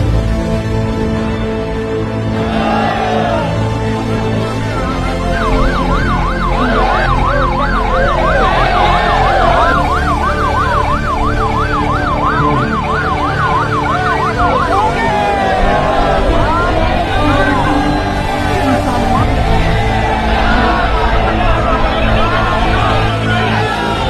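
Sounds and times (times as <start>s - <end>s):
music: 0.0s - 24.0s
police siren yelping: 4.7s - 23.9s.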